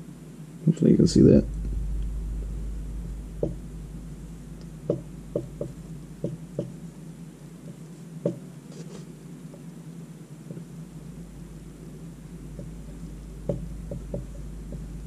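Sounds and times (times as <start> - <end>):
steady low hum: 0.0 - 15.0
soft irregular taps: 3.3 - 6.8, 12.5 - 15.0.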